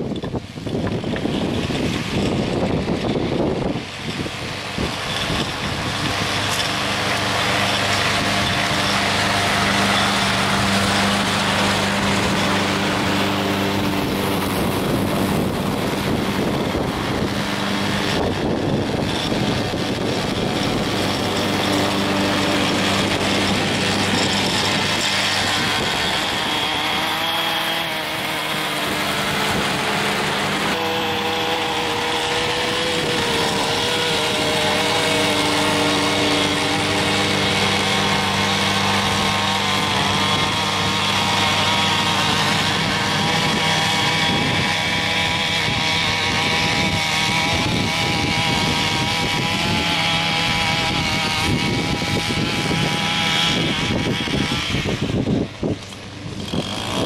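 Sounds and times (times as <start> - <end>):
lawn mower engine: 0.0 - 57.0
string trimmer cutting grass: 0.0 - 57.0
higher wavering engine tone: 4.5 - 45.0.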